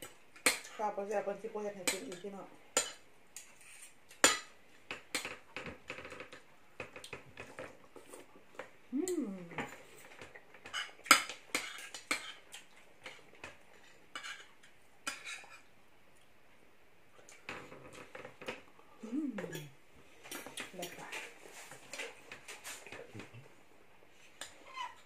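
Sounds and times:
cutlery scraping on plates: 0:02.8 - 0:06.4, 0:10.2 - 0:12.4, 0:13.0 - 0:15.7.

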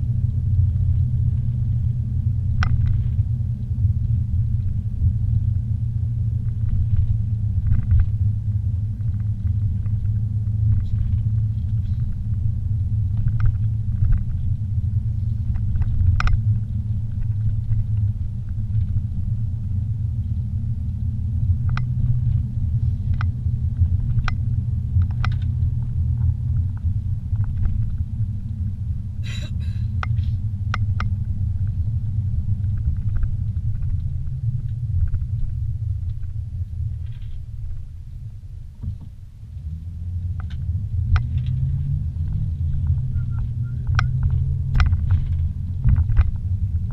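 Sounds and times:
car road and engine rumble: 0:00.0 - 0:46.9.

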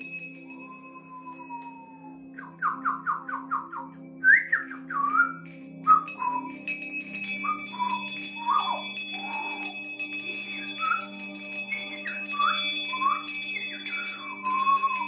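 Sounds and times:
hand bells ringing: 0:00.0 - 0:01.2, 0:05.4 - 0:15.0
person whistling gliding notes: 0:00.6 - 0:06.6, 0:07.4 - 0:09.6, 0:10.4 - 0:15.0.

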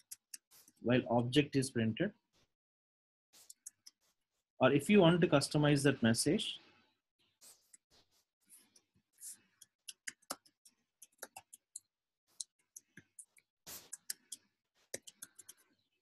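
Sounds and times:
keyboard typing: 0:12.4 - 0:15.6.

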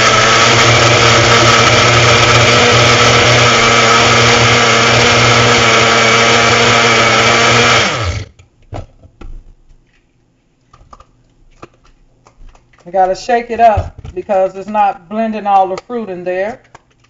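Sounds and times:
blender motor running: 0:00.0 - 0:08.3.

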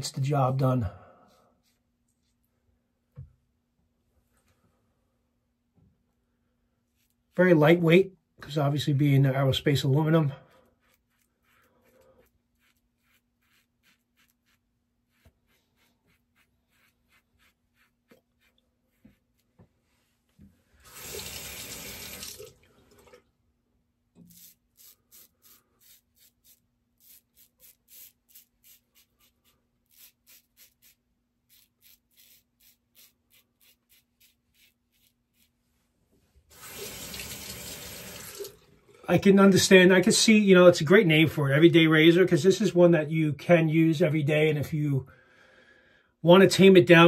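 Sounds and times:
razor blade scratching stubble: 0:10.8 - 0:19.5, 0:24.2 - 0:35.6.

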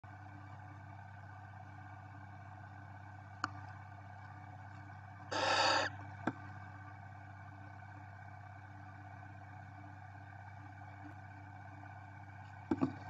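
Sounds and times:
steady low hum: 0:00.1 - 0:13.0
owl chick hissing: 0:05.3 - 0:05.9.

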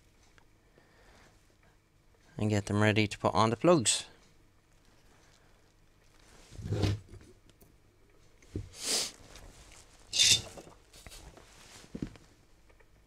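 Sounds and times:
scraping rustles: 0:09.2 - 0:12.4.

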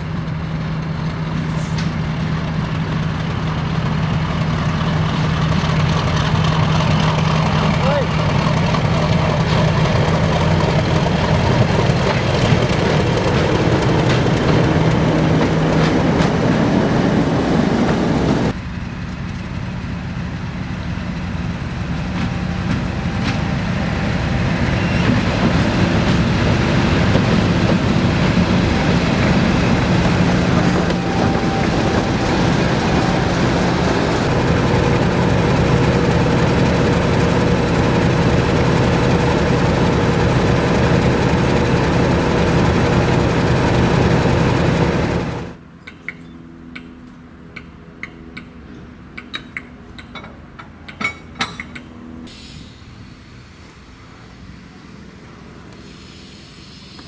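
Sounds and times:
diesel locomotive engine droning: 0:00.0 - 0:57.0.

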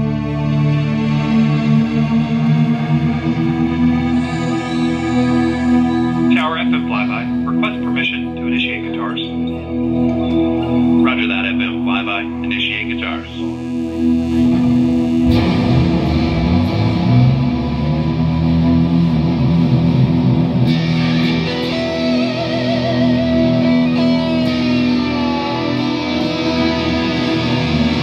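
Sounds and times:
bass guitar: 0:00.0 - 0:28.0
electric guitars: 0:00.0 - 0:28.0
held wavering guitar note: 0:01.0 - 0:28.0.

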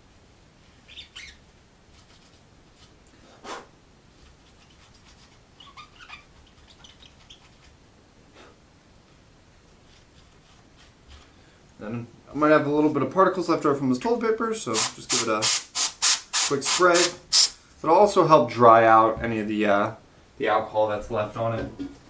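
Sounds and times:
paper wiping a chip: 0:01.9 - 0:07.8, 0:09.8 - 0:11.3
short squeaks: 0:05.6 - 0:07.6.

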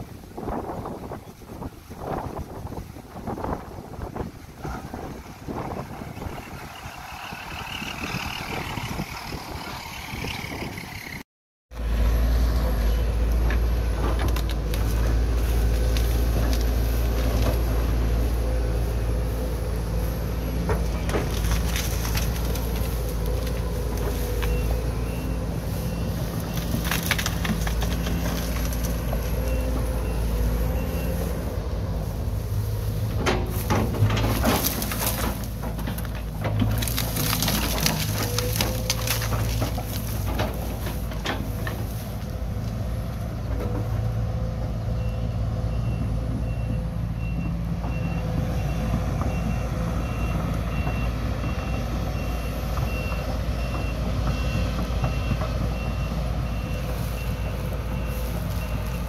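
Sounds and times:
noisy outdoor sound: 0:00.0 - 0:59.0
diesel engine running: 0:01.6 - 0:59.0
wood cracking and splintering: 0:13.2 - 0:30.6, 0:32.4 - 0:42.8.

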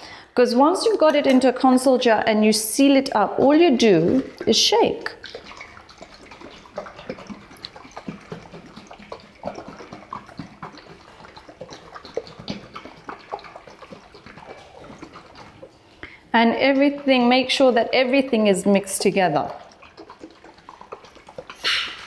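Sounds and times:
liquid sloshing in shaken jar: 0:02.8 - 0:22.0.

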